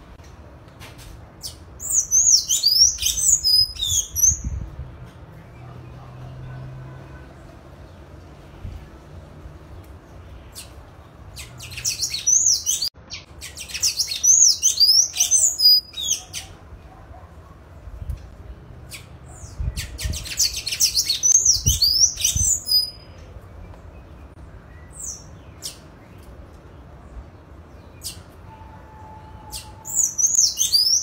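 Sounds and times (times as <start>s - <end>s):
bird twittering: 29.4s - 31.0s.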